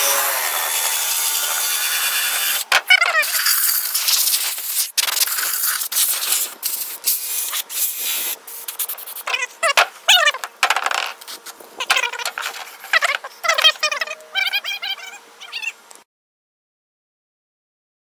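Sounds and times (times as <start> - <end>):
spray hiss: 3.2 - 9.2.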